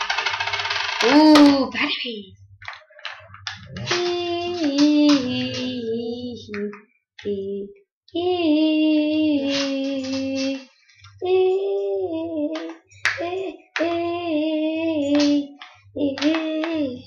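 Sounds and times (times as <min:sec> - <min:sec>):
child singing long notes: 0:03.8 - 0:17.0.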